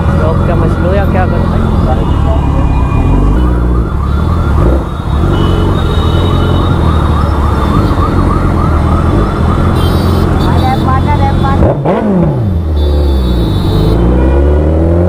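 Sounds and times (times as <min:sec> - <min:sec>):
road traffic rumble: 0:00.0 - 0:15.0
fast yelping siren: 0:00.6 - 0:11.0.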